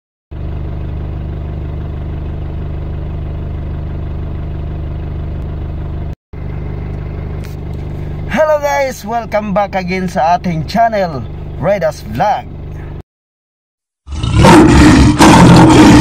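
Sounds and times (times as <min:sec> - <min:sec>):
car engine idling: 0:00.3 - 0:13.0.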